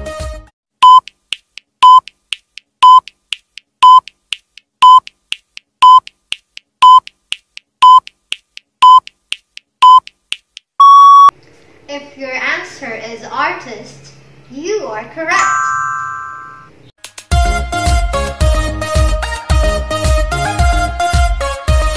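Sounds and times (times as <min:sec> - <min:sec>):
short electronic beeps: 0:00.8 - 0:01.1, 0:01.8 - 0:02.0, 0:02.8 - 0:03.0, 0:03.8 - 0:04.0, 0:04.8 - 0:05.0, 0:05.8 - 0:06.0, 0:06.8 - 0:07.0, 0:07.8 - 0:08.0, 0:08.8 - 0:09.0, 0:09.8 - 0:10.0, 0:10.8 - 0:11.3.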